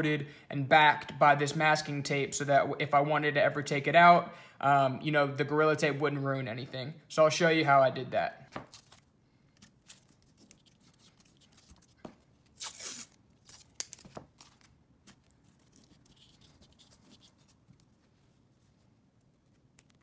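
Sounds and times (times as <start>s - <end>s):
masking tape ripping: 9.8s - 17.4s
tape taps and rustles: 13.5s - 17.9s.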